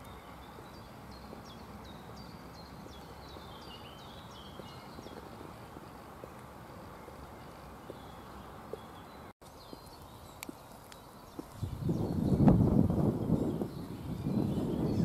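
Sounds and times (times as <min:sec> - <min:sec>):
high heels clicking on pavement: 0:00.0 - 0:11.6.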